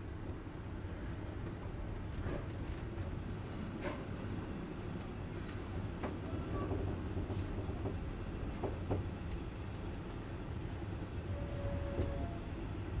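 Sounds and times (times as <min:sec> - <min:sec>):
train rumbling on rails: 0:00.0 - 0:13.0
faint steady squeal: 0:11.3 - 0:12.6.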